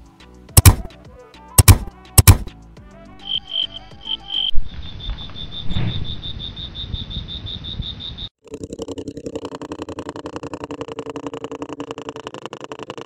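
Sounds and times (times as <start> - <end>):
toy insect chirping: 3.2 - 10.6.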